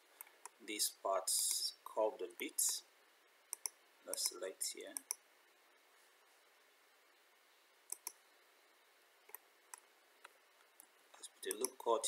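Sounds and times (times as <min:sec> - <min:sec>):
computer mouse clicks: 0:03.5 - 0:04.4, 0:05.0 - 0:05.2, 0:07.9 - 0:08.2, 0:11.5 - 0:11.9.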